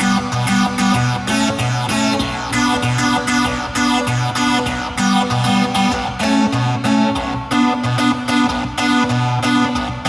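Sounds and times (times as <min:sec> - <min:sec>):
synthesizer bass notes and chords: 0:00.0 - 0:10.0
synthesizer rhythmic pattern: 0:00.0 - 0:10.0.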